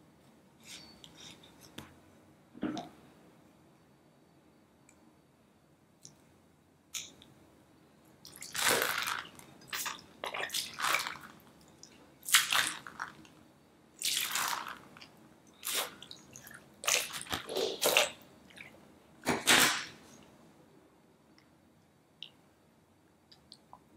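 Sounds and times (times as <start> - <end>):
water squirting and splashing: 8.3 - 11.3, 15.6 - 18.6.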